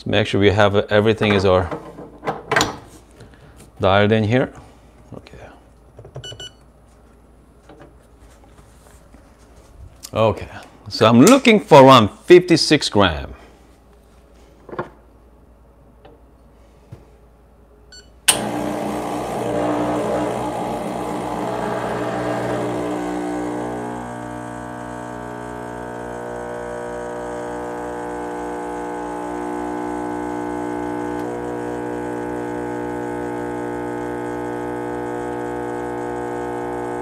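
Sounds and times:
espresso pump buzzing: 18.3 - 37.0.

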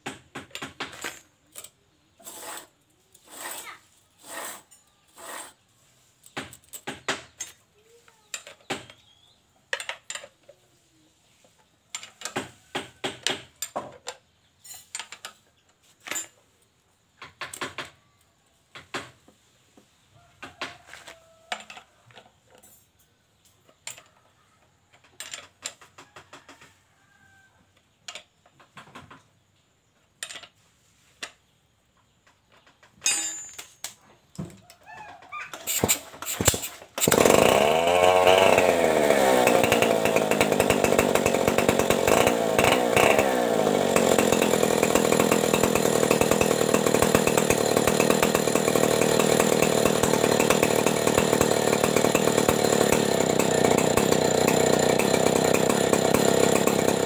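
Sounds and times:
metal clatter: 32.9 - 33.9
saw chain clinking on guide bar: 33.0 - 33.9.

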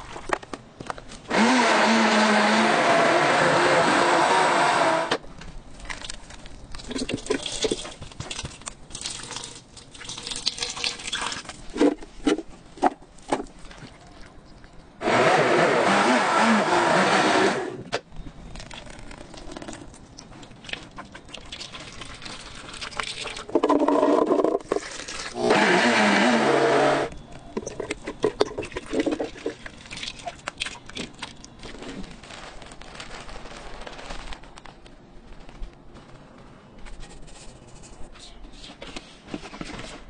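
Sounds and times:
blender motor running: 1.3 - 5.2, 15.0 - 17.8, 25.4 - 27.1.

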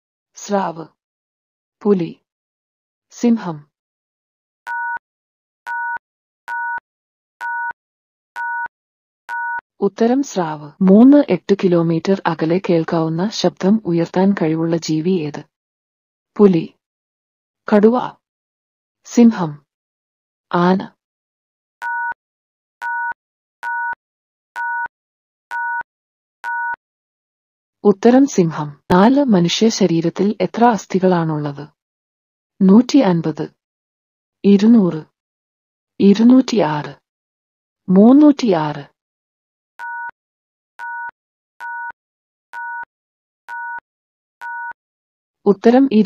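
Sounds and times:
electronic two-tone beeps: 5.7 - 6.8, 7.4 - 7.8, 22.8 - 24.0, 25.5 - 25.8, 26.4 - 26.8, 42.6 - 42.9, 43.5 - 43.8, 44.4 - 44.8
short electronic timer beeps: 42.6 - 42.9, 44.4 - 44.8.

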